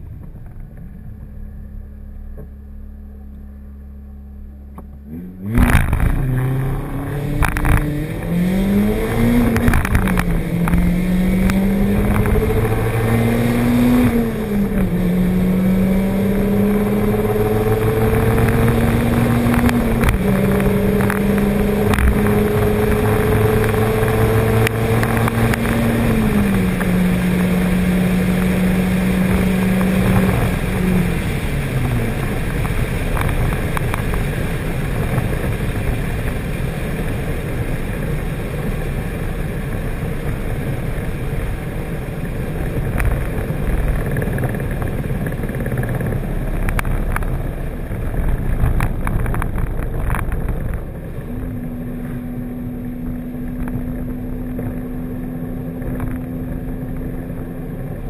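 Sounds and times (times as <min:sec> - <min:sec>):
car engine at high revs: 0:00.0 - 0:58.0
wind and road noise: 0:00.0 - 0:58.0.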